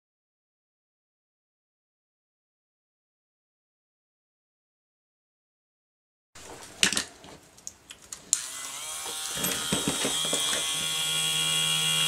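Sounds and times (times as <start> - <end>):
rotary tool motor whine: 8.4 - 12.0.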